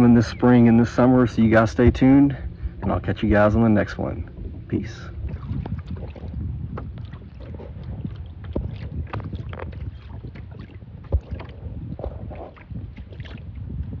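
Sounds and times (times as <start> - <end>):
waves slapping kayak hull: 0.0 - 14.0
wind buffeting microphone: 0.0 - 14.0.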